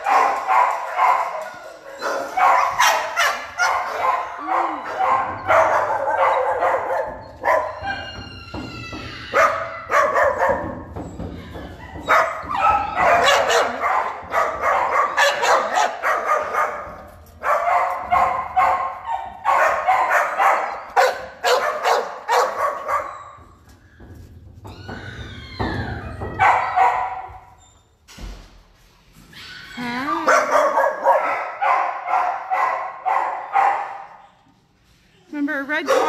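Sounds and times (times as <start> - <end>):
dogs barking: 0.0 - 8.3, 9.3 - 23.4, 26.2 - 27.5, 30.2 - 34.2, 35.8 - 36.0
dog whining: 4.0 - 14.2, 29.3 - 30.3.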